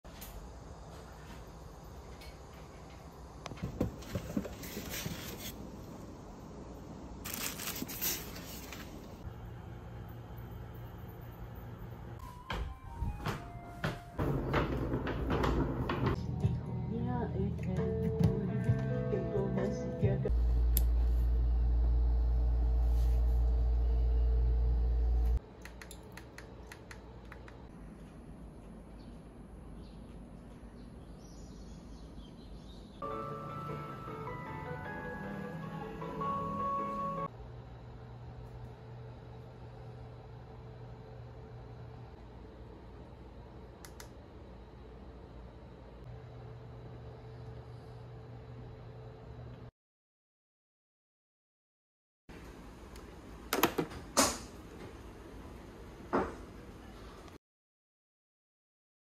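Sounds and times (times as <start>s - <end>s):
plastic wrap rustling: 7.2s - 9.2s
steady low hum: 14.2s - 33.0s, 37.2s - 49.7s.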